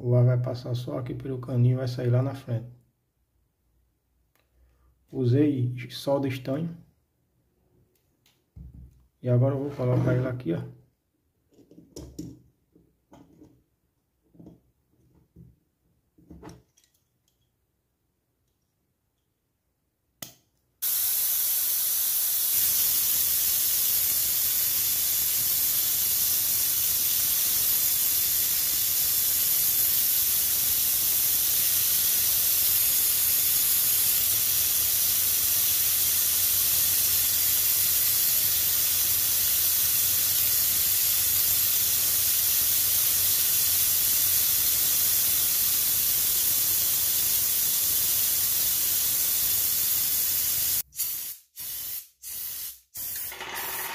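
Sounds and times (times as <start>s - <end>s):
spray gun air hissing: 20.8s - 53.8s.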